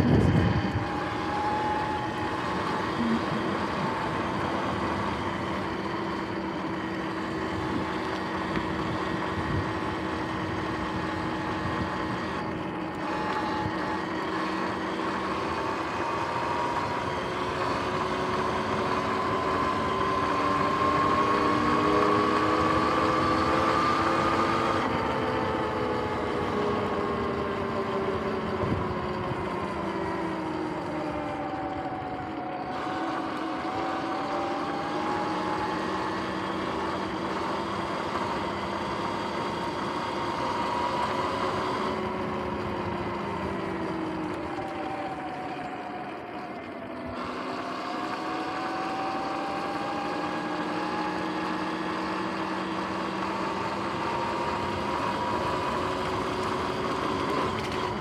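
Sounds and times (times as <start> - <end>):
tyre and wind noise: 0.0 - 1.0
electric motor whine: 0.0 - 58.0.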